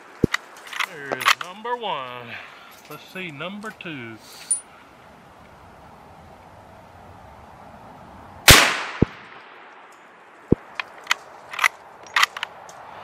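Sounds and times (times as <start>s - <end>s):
rifle shot: 8.5s - 9.8s.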